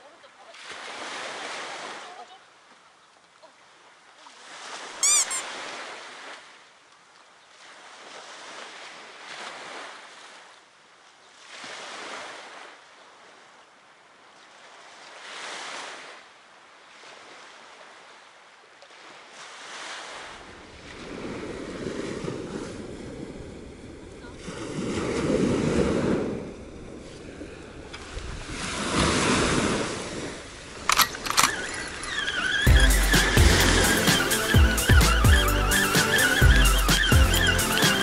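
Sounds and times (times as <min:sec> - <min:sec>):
waves breaking on beach: 0:00.0 - 0:38.0
short bright ringing tone: 0:05.0 - 0:05.4
low wind rumble on microphone: 0:20.6 - 0:30.7.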